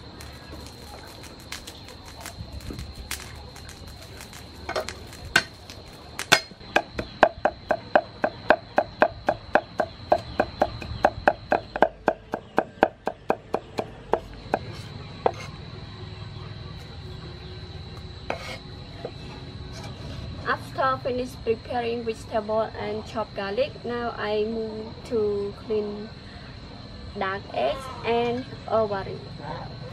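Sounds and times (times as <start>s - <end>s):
cleaver chopping on wooden block: 6.2s - 15.5s.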